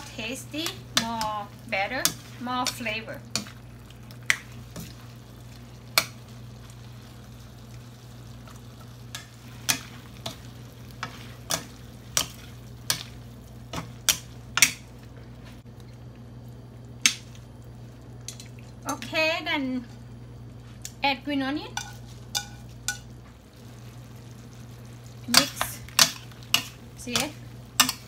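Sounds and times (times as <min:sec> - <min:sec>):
stir-fry sizzling: 0:00.0 - 0:28.0
spatulas scraping and knocking pan: 0:09.1 - 0:14.9, 0:21.7 - 0:23.1, 0:25.3 - 0:28.0.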